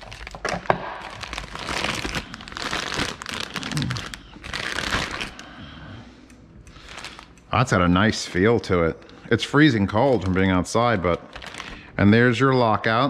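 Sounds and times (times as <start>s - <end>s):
plastic bag crinkling: 0.0s - 5.5s, 6.8s - 7.3s, 9.7s - 12.0s.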